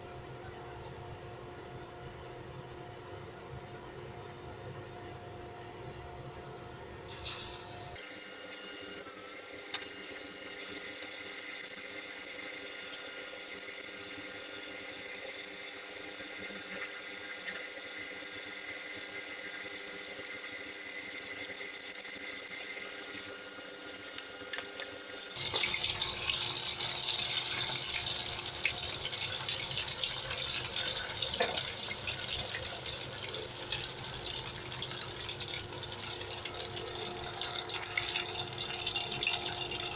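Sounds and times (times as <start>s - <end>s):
onion rings deep-frying in oil: 7.1s - 39.9s.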